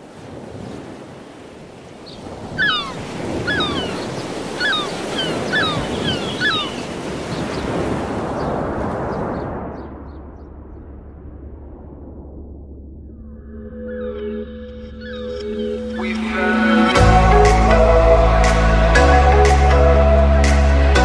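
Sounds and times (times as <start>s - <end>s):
sea surf washing: 0.0s - 10.0s, 15.8s - 21.0s.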